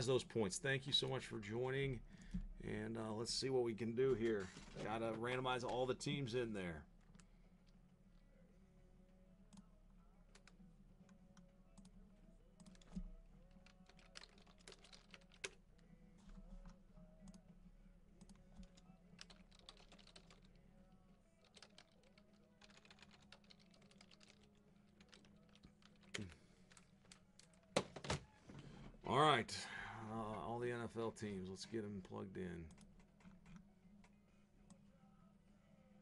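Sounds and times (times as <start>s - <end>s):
faint keyboard typing: 9.5s - 17.5s, 18.2s - 27.8s.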